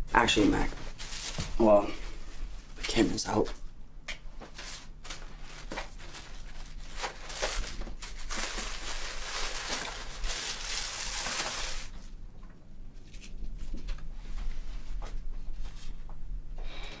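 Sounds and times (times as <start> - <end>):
tissue paper rustling: 0.8 - 1.7, 4.4 - 12.1.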